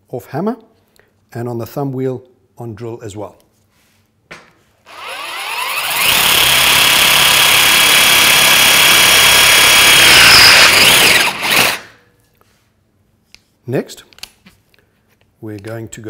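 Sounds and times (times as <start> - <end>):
cordless drill whining into steel: 4.9 - 12.0.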